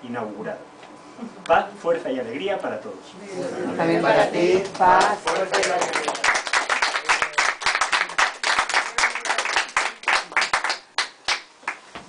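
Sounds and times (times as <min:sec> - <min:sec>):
people applauding: 0:04.6 - 0:11.8.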